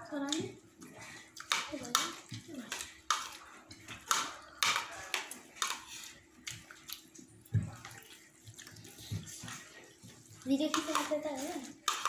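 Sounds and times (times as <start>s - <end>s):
wet eating smacking: 0.3s - 12.0s.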